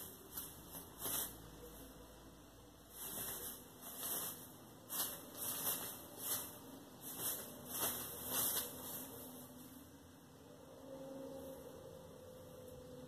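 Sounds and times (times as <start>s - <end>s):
shredded paper rustling: 0.0s - 2.2s, 2.8s - 9.8s.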